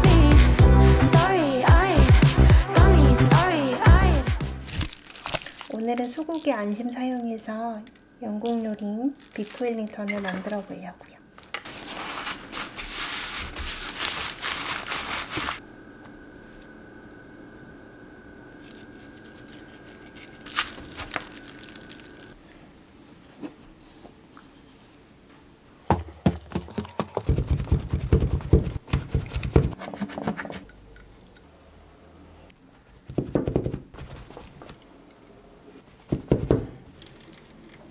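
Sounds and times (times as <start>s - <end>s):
paper towels crinkling: 4.7s - 6.6s, 9.2s - 15.6s, 20.4s - 22.4s
loud knocks and thumps: 25.9s - 29.8s, 36.1s - 36.8s.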